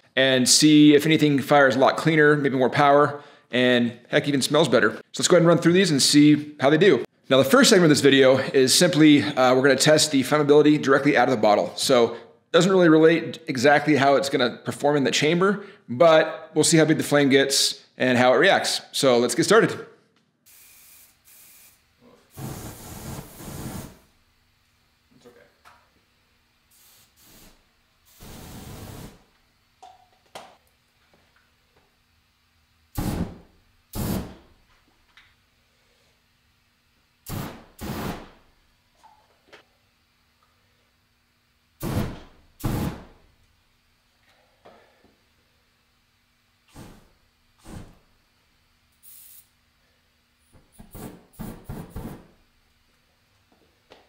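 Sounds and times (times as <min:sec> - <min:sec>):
aerosol spray hissing and burning: 0:20.5 - 0:24.1, 0:26.7 - 0:29.3, 0:33.0 - 0:34.4, 0:37.3 - 0:38.3, 0:49.0 - 0:49.5
spray igniting in bursts: 0:20.5 - 0:24.1, 0:26.7 - 0:29.3, 0:32.9 - 0:34.5, 0:37.2 - 0:38.4, 0:41.8 - 0:43.2, 0:49.0 - 0:49.5
jet of flame: 0:22.3 - 0:24.1, 0:26.8 - 0:29.3, 0:33.0 - 0:34.5, 0:37.3 - 0:38.4, 0:41.8 - 0:43.2.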